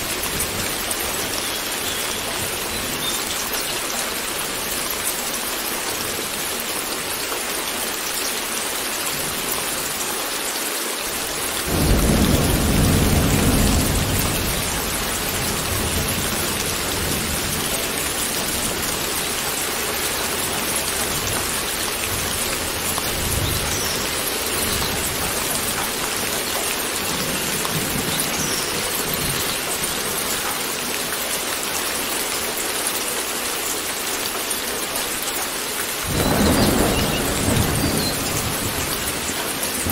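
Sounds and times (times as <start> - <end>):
heavy rain: 0.0 - 39.9
thunder rumbling: 11.7 - 28.5, 36.1 - 39.9.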